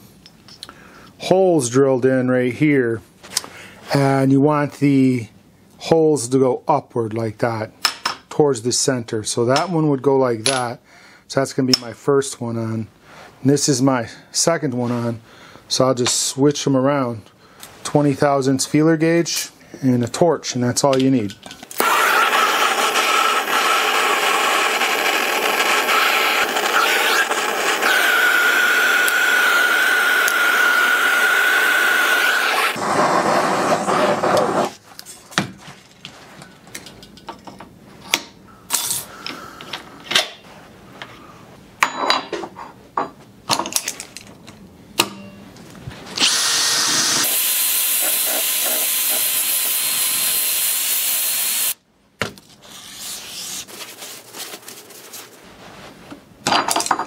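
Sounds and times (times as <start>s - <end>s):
propane torch hissing: 31.0s - 34.7s, 46.4s - 51.8s.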